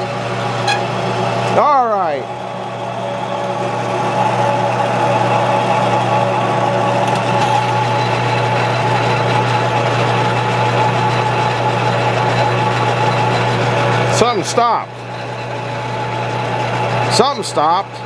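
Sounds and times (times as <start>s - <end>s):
metal lathe motor humming: 0.0s - 18.0s
drill boring into wood: 7.1s - 14.4s.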